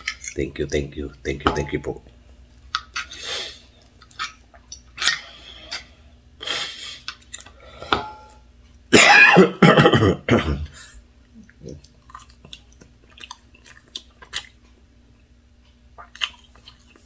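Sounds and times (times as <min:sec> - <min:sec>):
person clearing throat: 0:09.0 - 0:10.8.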